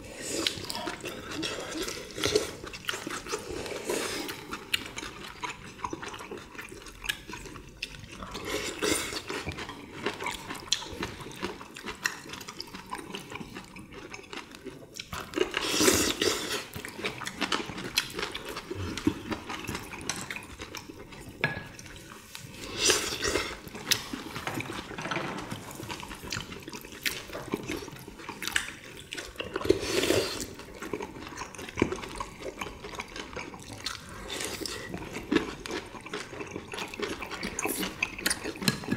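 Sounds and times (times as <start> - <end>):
wet chewing: 0.4 - 25.0, 25.6 - 38.9
slurping broth: 15.5 - 16.8, 22.2 - 24.4, 29.5 - 32.2.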